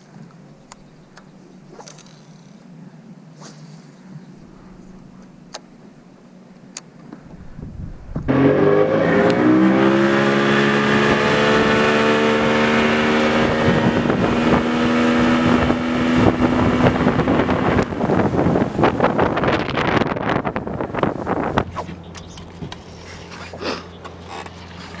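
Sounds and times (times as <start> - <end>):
outboard motor running: 6.3 - 25.0.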